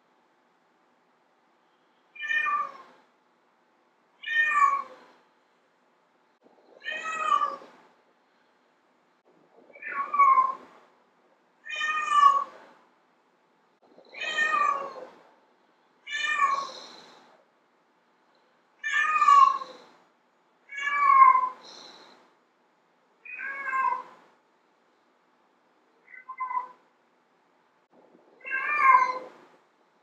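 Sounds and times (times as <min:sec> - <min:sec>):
cat meowing: 0:02.2 - 0:02.9, 0:04.2 - 0:05.0, 0:06.8 - 0:07.7, 0:09.7 - 0:10.7, 0:11.6 - 0:12.6, 0:14.1 - 0:15.1, 0:16.1 - 0:17.1, 0:18.8 - 0:19.9, 0:20.7 - 0:21.6, 0:23.2 - 0:24.2, 0:26.1 - 0:26.8, 0:28.4 - 0:29.4.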